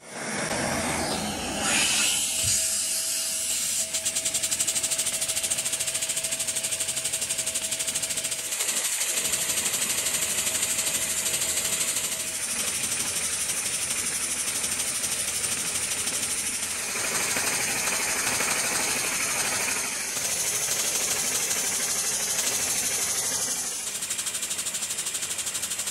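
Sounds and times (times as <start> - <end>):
rush of drawn air: 0.0 - 4.0.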